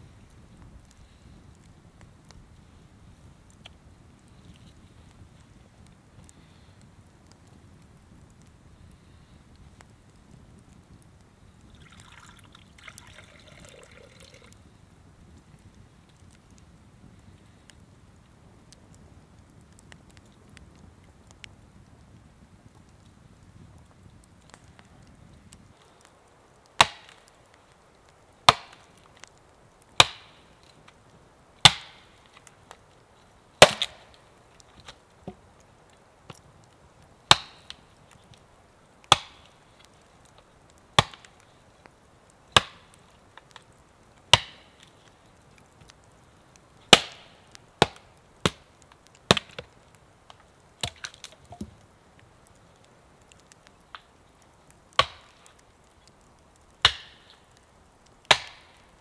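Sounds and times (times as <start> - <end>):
axe chopping wood: 26.8 - 27.2, 28.5 - 28.8, 31.6 - 32.0, 33.6 - 34.0, 46.9 - 47.2, 55.0 - 55.3, 56.8 - 57.2, 58.3 - 58.6.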